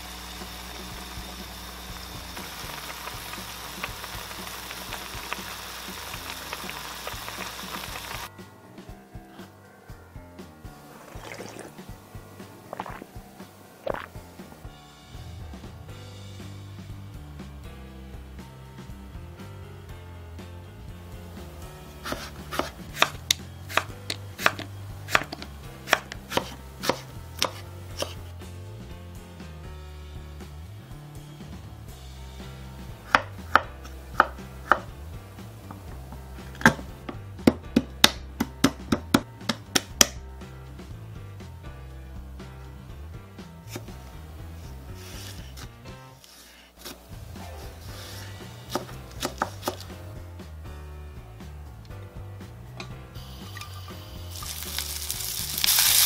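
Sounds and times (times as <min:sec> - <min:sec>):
noodles boiling in pot: 0:00.0 - 0:08.3, 0:10.8 - 0:14.8, 0:53.2 - 0:56.0
knife chopping on wooden board: 0:22.0 - 0:28.2, 0:33.1 - 0:34.9, 0:48.6 - 0:50.0.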